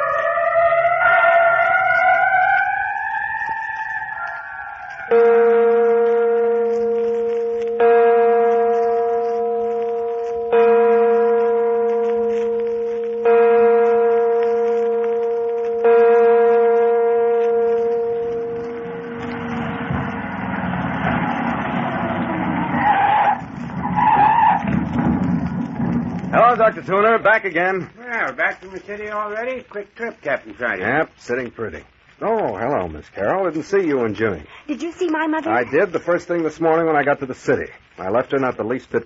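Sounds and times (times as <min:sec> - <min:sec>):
deep bell tolling: 0:05.1 - 0:22.5
car driving up and stopping: 0:18.8 - 0:26.4
tyre squeal: 0:22.7 - 0:25.1.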